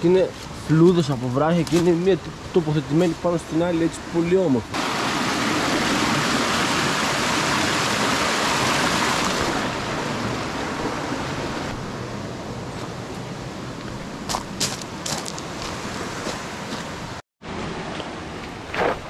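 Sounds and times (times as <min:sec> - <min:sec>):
stream rushing over rocks: 0:01.2 - 0:11.7.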